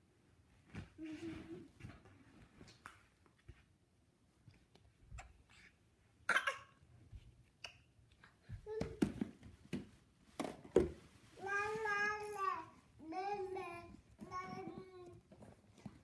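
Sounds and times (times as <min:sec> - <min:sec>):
plastic balls knocking and rustling: 0:08.5 - 0:11.1, 0:13.8 - 0:16.0.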